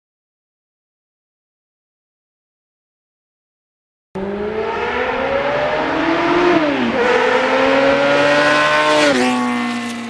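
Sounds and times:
motorcycle engine accelerating: 0:04.2 - 0:10.0.

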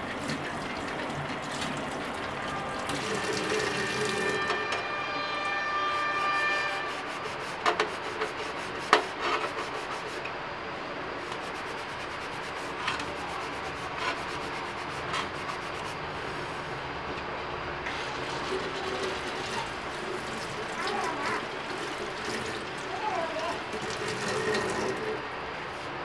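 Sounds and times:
sponge scrubbing metal plate: 0:05.8 - 0:10.2, 0:11.2 - 0:16.4.

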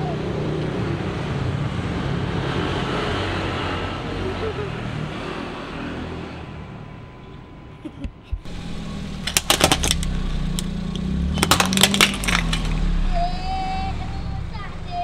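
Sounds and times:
car engine hum: 0:00.0 - 0:15.0
plastic toy cracking and snapping: 0:09.3 - 0:12.8.

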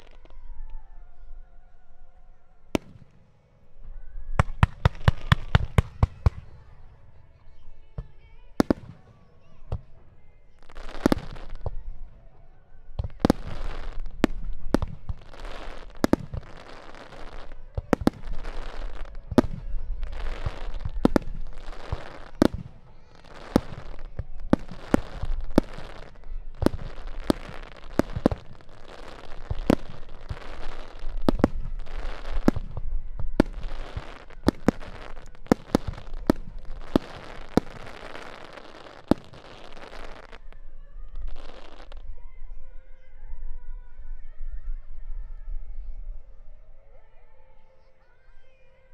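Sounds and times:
firework crackle: 0:00.0 - 0:09.7, 0:10.6 - 0:42.1.

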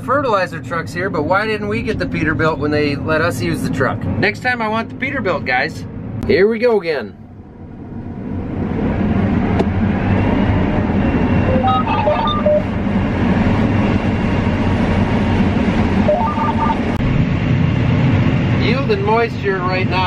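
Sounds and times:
combine harvester drone: 0:00.0 - 0:20.0
electronic beeps: 0:11.4 - 0:12.7, 0:16.0 - 0:16.9.

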